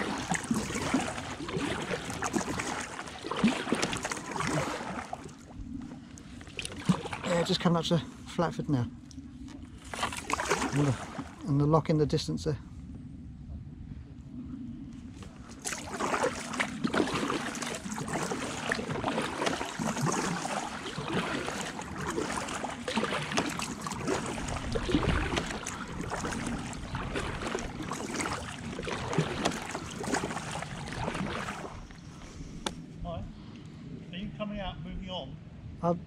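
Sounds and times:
water dripping off paddle: 0.0 - 5.4, 6.1 - 7.5, 15.6 - 31.7
paddle strokes splashing: 0.0 - 8.3, 9.2 - 11.5, 15.1 - 32.9.

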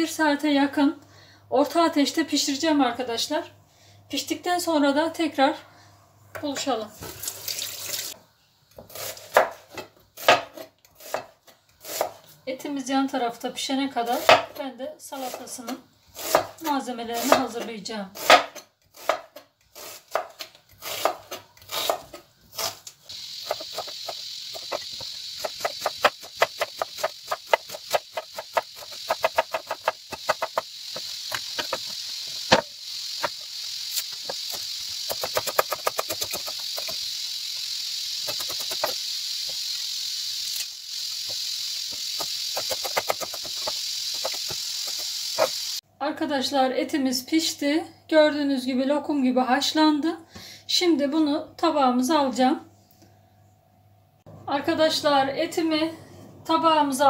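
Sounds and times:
knife chopping on cutting board: 8.8 - 11.3, 14.2 - 14.6, 16.2 - 16.6, 18.2 - 19.4, 20.0 - 22.8, 23.5 - 31.9
steady high hiss: 22.9 - 45.8.

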